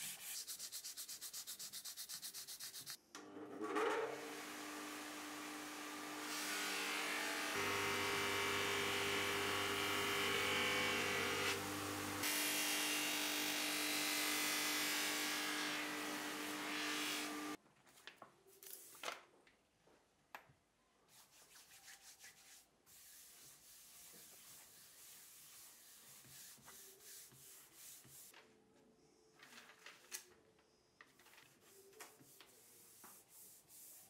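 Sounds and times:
bench grinder buffing: 3.7 - 17.6.

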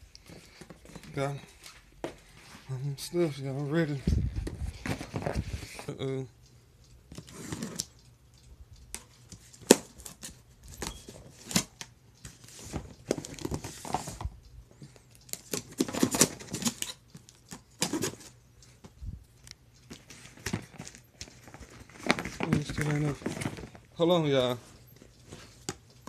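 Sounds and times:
cardboard rustling and crinkling: 3.9 - 5.8, 9.4 - 14.4, 19.9 - 25.8.

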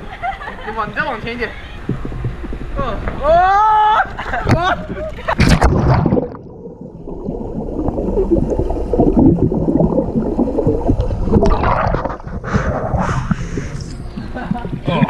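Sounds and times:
muffled underwater bubbling: 4.4 - 15.0.

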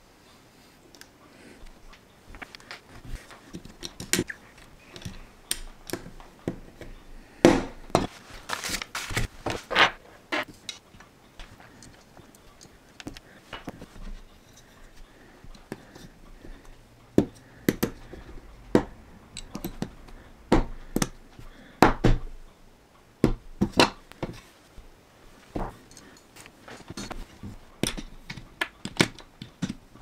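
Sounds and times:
plastic bricks snapping together: 27.8 - 29.9.

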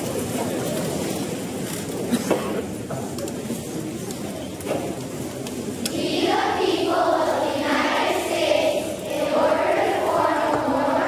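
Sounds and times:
audience murmur: 0.0 - 11.0
group of voices singing: 5.9 - 11.0.

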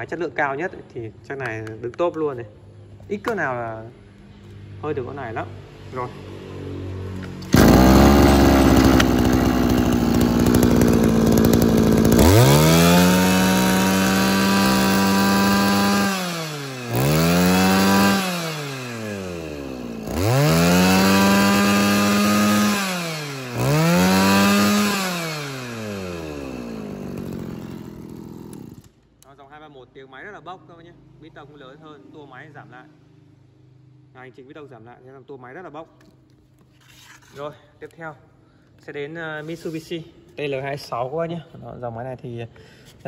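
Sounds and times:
brushcutter engine revving: 7.2 - 29.0.

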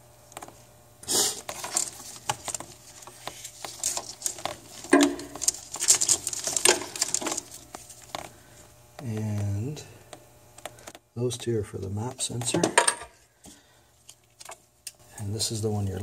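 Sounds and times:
wiring harness rustling: 1.4 - 9.8.

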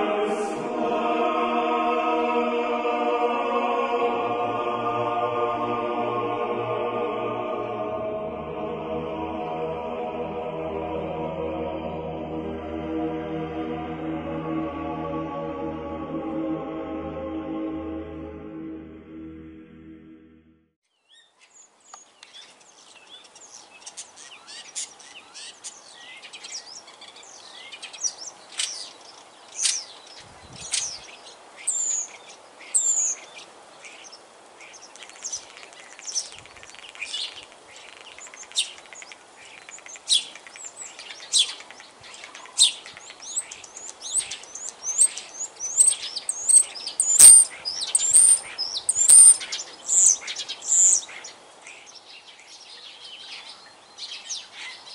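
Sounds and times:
starling singing: 0.0 - 12.8, 23.8 - 51.3.

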